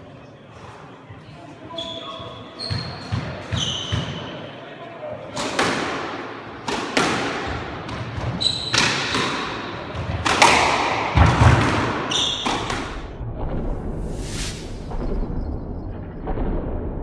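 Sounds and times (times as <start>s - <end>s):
squash ball hits echoing: 5.4s - 13.1s.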